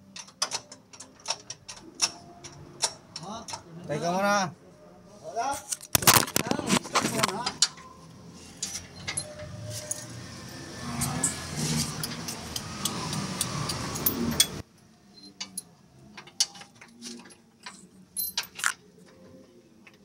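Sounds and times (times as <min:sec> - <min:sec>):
busy background noise: 0:00.0 - 0:20.0
metal tools clinking: 0:08.6 - 0:10.2, 0:13.6 - 0:18.8.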